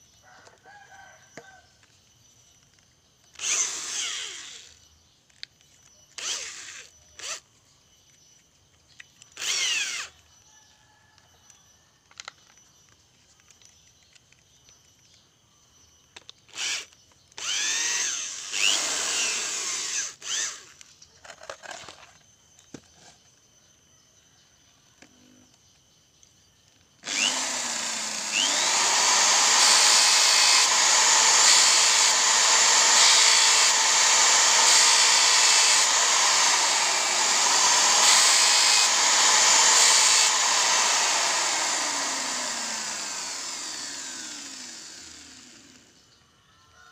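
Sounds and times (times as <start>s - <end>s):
electric drill spinning: 3.3s - 4.9s, 6.1s - 7.5s, 9.3s - 10.4s, 16.2s - 20.9s, 27.0s - 46.0s.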